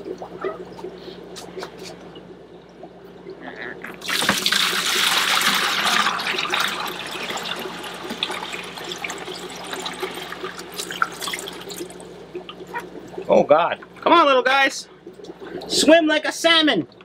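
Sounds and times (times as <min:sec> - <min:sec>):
water pouring into plastic bucket: 0:04.0 - 0:12.0.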